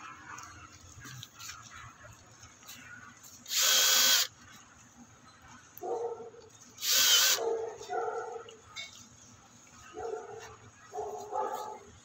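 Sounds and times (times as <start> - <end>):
power drill whining: 3.5 - 4.3, 6.8 - 7.4.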